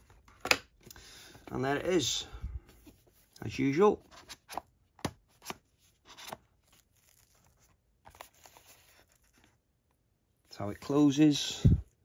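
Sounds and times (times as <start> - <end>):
cardboard packaging clicks and taps: 4.5 - 5.6.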